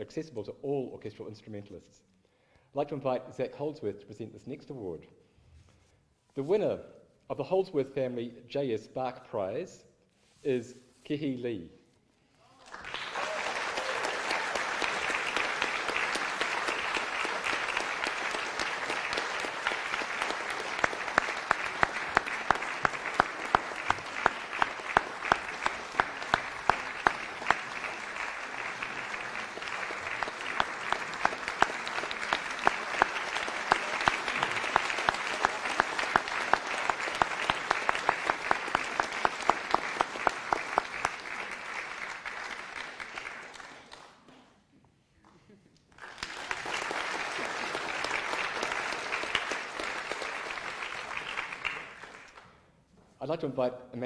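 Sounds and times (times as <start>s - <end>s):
audience applauding: 12.5s - 44.4s, 45.9s - 52.5s
nearby hands clapping sharply: 12.6s - 44.6s.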